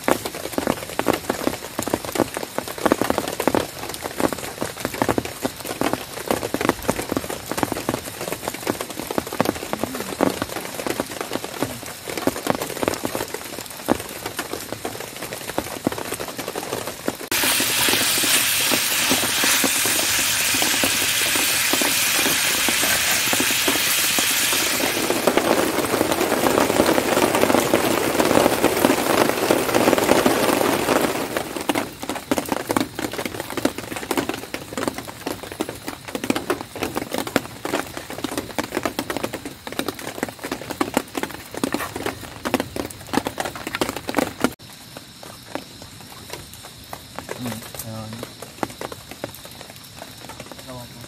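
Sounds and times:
rain pattering: 0.0s - 51.0s
pan hissing on gas stove: 17.3s - 25.9s.

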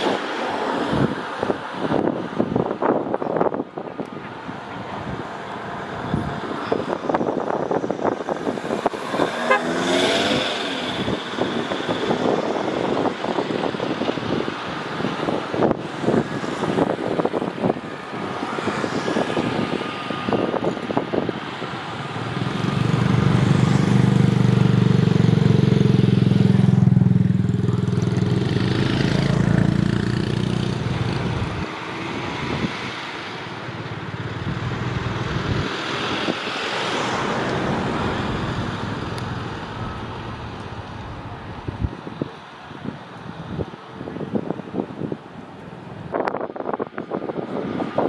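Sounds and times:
wind buffeting microphone: 0.0s - 48.0s
jet engines at taxi power: 10.5s - 22.6s.

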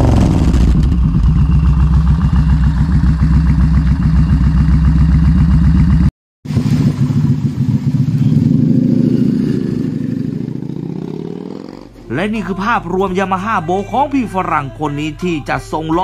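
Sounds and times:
motorcycle exhaust pulsing: 0.0s - 15.2s.

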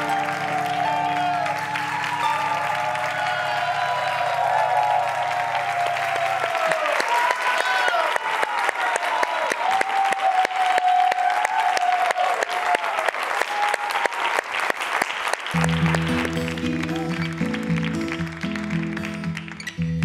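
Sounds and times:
strummed acoustic guitar music: 0.0s - 2.4s, 15.6s - 20.0s
person cheering: 0.0s - 14.4s, 15.6s - 18.0s
audience applauding: 0.0s - 20.0s.

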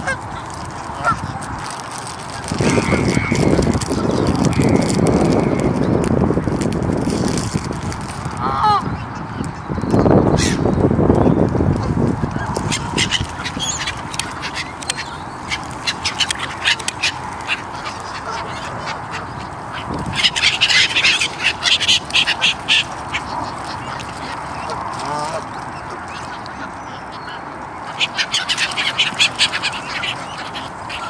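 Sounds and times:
geese honking: 0.0s - 5.8s, 12.3s - 31.0s
gulls calling: 0.0s - 6.1s, 8.3s - 31.0s.

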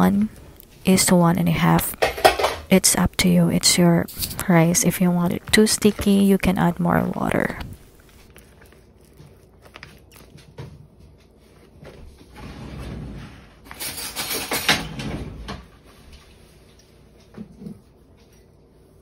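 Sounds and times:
plastic spoon stirring rice: 4.1s - 10.6s.

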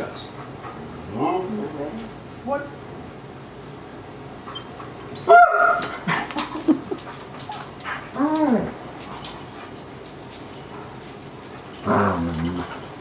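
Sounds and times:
dog whining: 4.4s - 6.0s, 7.5s - 8.9s
dog yelp: 4.5s - 6.0s.

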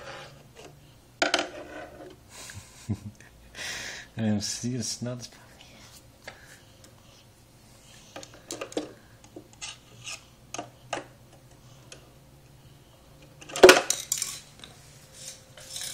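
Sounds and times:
toy clattering: 13.4s - 14.5s.

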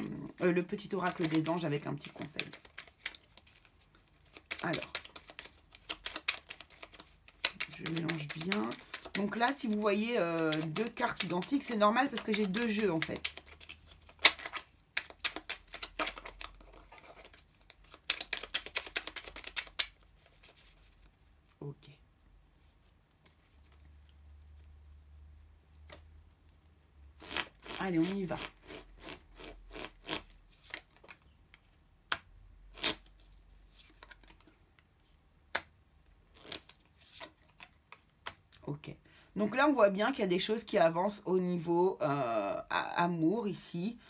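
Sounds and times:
cards being shuffled: 0.5s - 21.6s, 22.7s - 24.9s, 25.8s - 34.6s, 36.3s - 38.6s.

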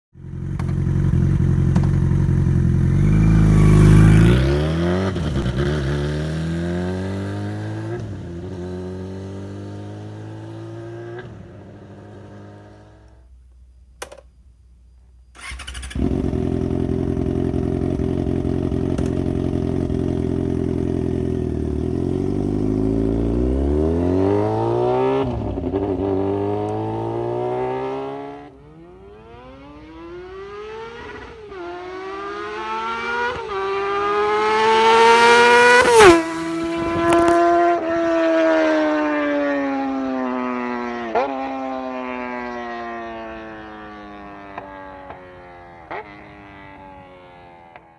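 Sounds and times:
motorcycle accelerating through gears: 0.2s - 13.3s, 15.4s - 47.9s.

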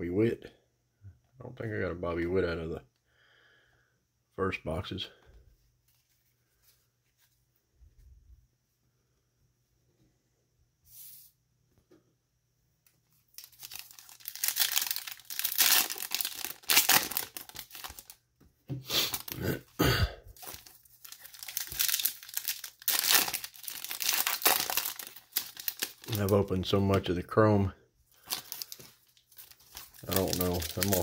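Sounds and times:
foil wrappers crinkling and tearing: 13.3s - 18.2s, 19.1s - 19.4s, 20.4s - 27.0s, 28.1s - 31.0s.

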